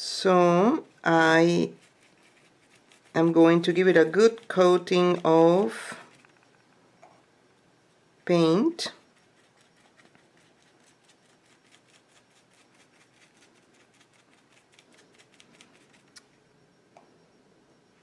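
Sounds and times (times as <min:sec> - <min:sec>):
paintbrush dabbing ticks: 0:01.1 - 0:06.6, 0:08.9 - 0:16.3.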